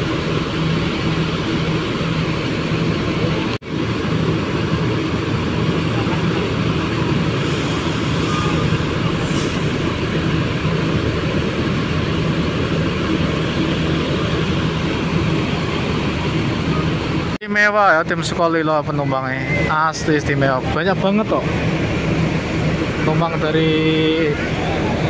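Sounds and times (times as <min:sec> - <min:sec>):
diesel coach engine idling: 0:00.0 - 0:25.0
brief air hisses: 0:07.3 - 0:10.5.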